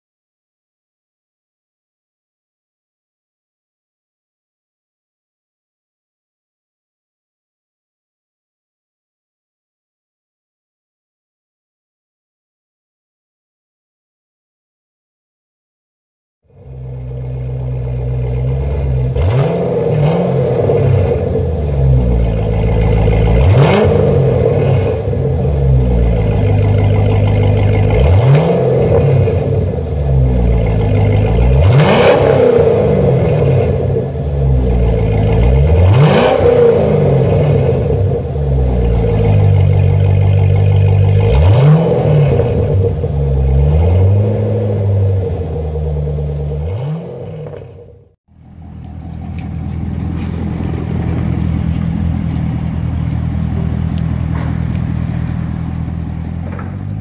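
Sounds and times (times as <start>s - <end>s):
car engine idling and revving: 16.5s - 57.0s.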